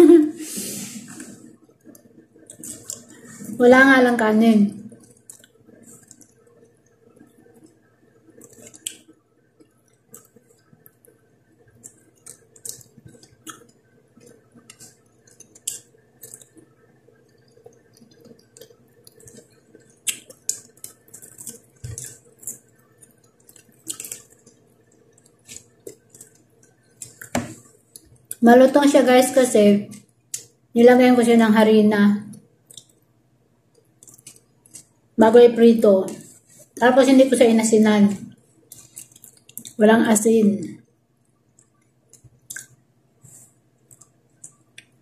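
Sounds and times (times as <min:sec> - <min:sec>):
faint steady hum: 0:00.0 - 0:45.0
lip smacks and chewing: 0:01.1 - 0:03.4, 0:04.9 - 0:28.4, 0:30.0 - 0:30.6, 0:32.3 - 0:33.1, 0:33.7 - 0:35.0, 0:38.6 - 0:39.8, 0:41.3 - 0:45.0.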